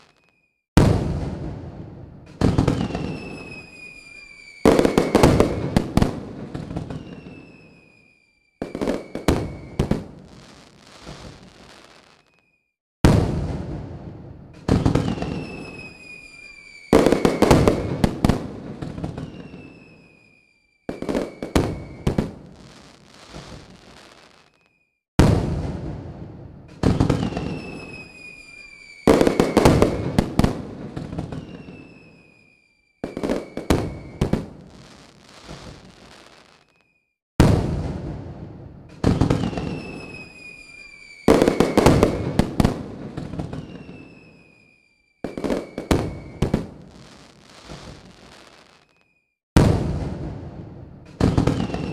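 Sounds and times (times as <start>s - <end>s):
firework whistles: 0.0s - 0.6s, 2.4s - 12.8s, 14.7s - 25.0s, 26.8s - 37.2s, 38.9s - 49.4s, 51.2s - 51.9s
fireworks bangs and crackle: 0.0s - 51.9s.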